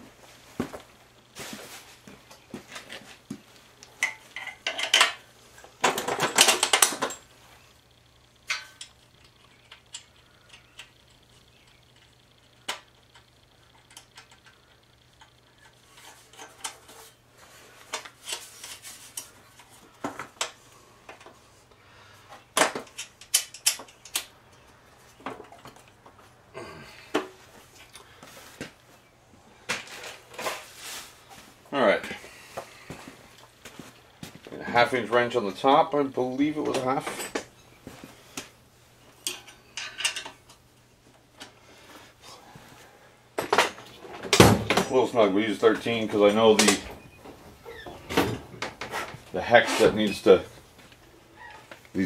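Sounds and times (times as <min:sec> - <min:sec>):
metal bolts and nuts clinking: 0:04.0 - 0:05.2, 0:08.4 - 0:10.9, 0:22.6 - 0:24.6, 0:39.2 - 0:40.6
scraping rustle: 0:15.8 - 0:19.8.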